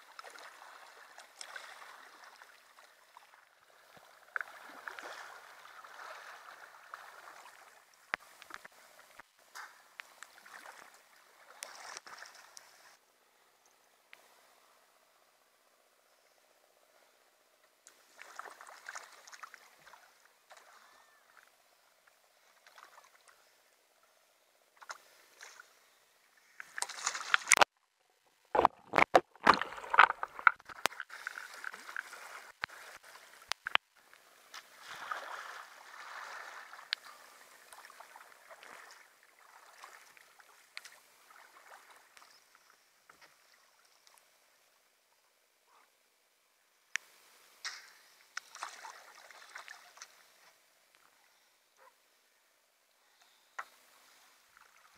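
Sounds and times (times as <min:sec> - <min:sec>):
water sloshing and running off: 0:00.0 - 0:08.6, 0:18.0 - 0:21.1, 0:28.6 - 0:42.2, 0:48.4 - 0:50.4
paddle splashes: 0:00.0 - 0:13.0, 0:17.9 - 0:21.6, 0:22.4 - 0:23.6, 0:24.8 - 0:27.7, 0:28.5 - 0:44.3, 0:47.0 - 0:51.9
rush of water: 0:00.0 - 0:13.0, 0:28.6 - 0:42.4
splashes and knocks: 0:26.6 - 0:27.7, 0:28.5 - 0:33.9, 0:34.5 - 0:42.0.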